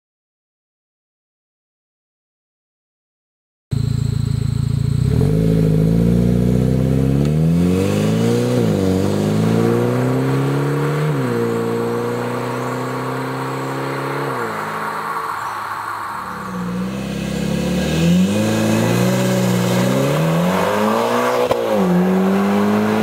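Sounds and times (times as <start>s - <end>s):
car accelerating hard: 4.9s - 23.0s.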